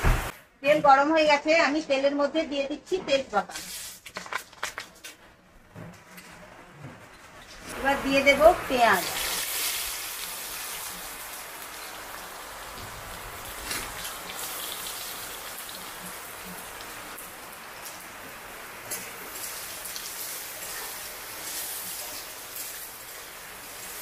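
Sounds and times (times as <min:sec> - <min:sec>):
onions sizzling in hot oil: 0:07.5 - 0:24.0.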